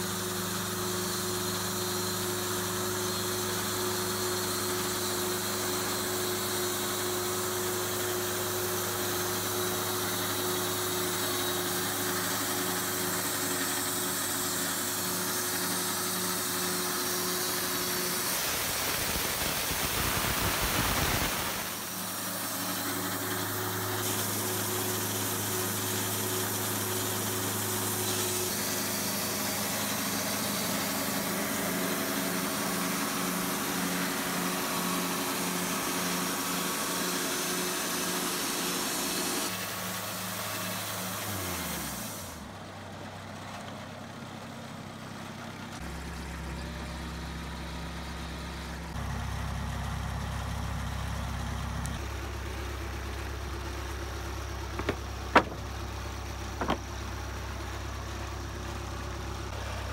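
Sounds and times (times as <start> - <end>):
sawmill motor humming: 0.0 - 42.5, 45.8 - 59.9
loud rushing noise: 18.2 - 22.5.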